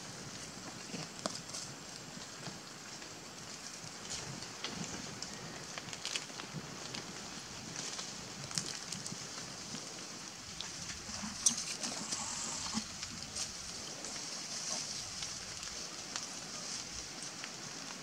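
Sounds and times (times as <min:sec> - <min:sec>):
animals moving on dry leaves: 0:00.0 - 0:18.0
steady high hiss: 0:10.1 - 0:18.0.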